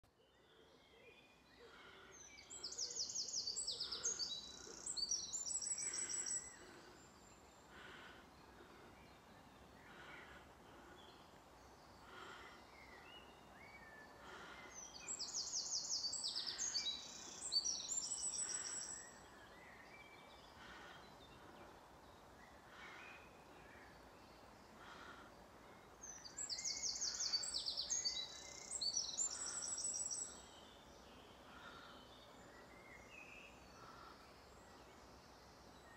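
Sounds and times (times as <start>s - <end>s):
other birds calling: 1.7s - 7.0s, 7.6s - 19.2s, 24.7s - 30.4s, 31.4s - 32.6s.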